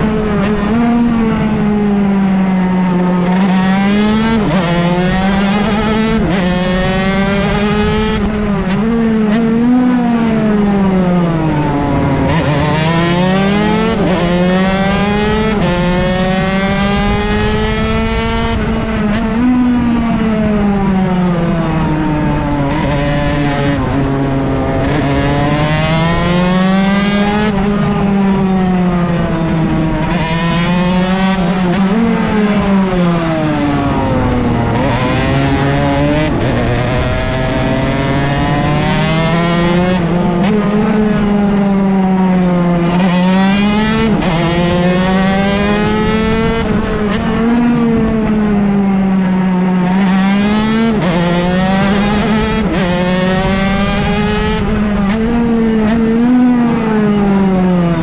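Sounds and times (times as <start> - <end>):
two-stroke race engine revving: 10.6 - 18.7, 29.4 - 58.0.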